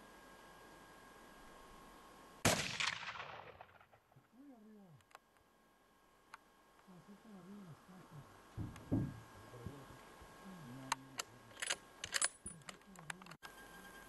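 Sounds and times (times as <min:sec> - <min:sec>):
faint wavering low hum: 0:00.0 - 0:14.0
low thump: 0:08.6 - 0:09.2.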